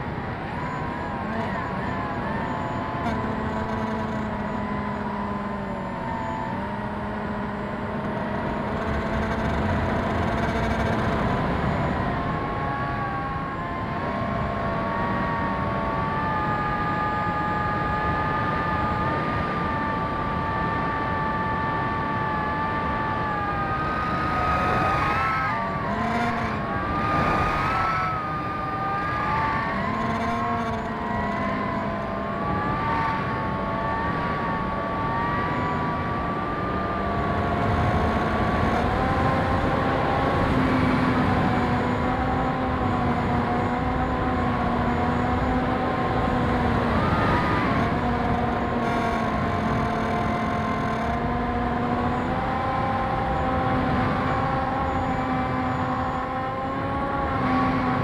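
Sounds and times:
model plane motor whining: 14.4s - 52.0s.

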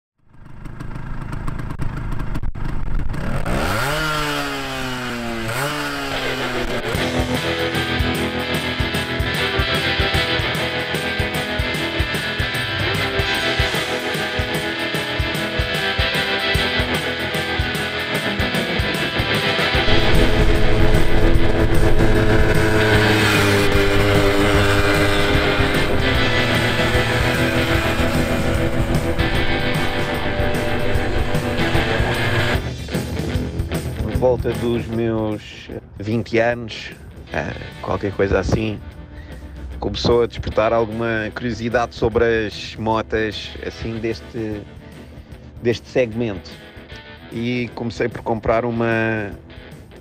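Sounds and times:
moped engine revving: 0.2s - 33.8s
electric guitar rock music: 3.2s - 50.0s.

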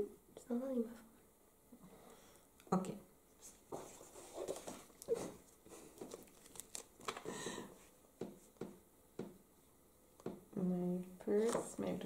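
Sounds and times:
paper rustling and crinkling: 3.5s - 7.4s.

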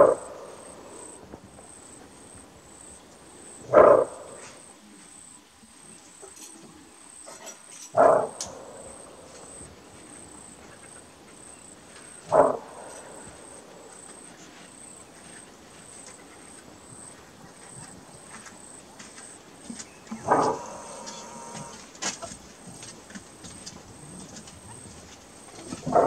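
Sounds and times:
antelope barking: 0.0s - 1.2s, 3.4s - 4.7s, 7.3s - 9.7s, 10.5s - 14.6s, 20.1s - 21.8s, 25.6s - 26.0s
insect trill: 0.0s - 22.8s.

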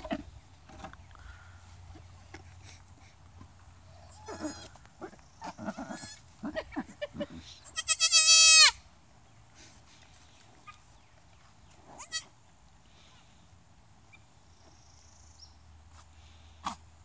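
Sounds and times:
goat kid bleating: 3.9s - 4.8s, 5.6s - 6.9s, 7.6s - 8.8s, 11.9s - 12.3s.

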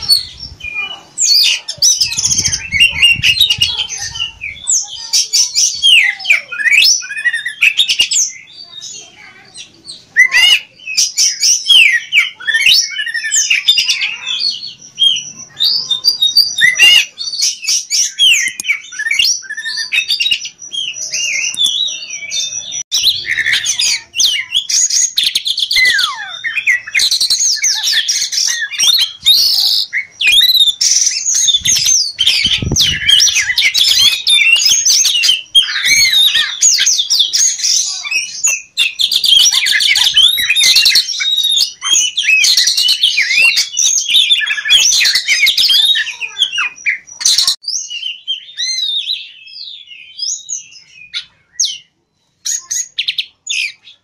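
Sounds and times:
bird singing whistles and trills: 0.0s - 54.0s.

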